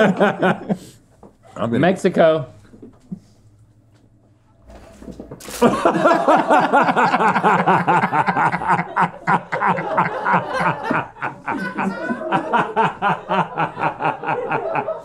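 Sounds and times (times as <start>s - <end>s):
men laughing loudly: 0.0s - 1.6s, 5.4s - 15.0s.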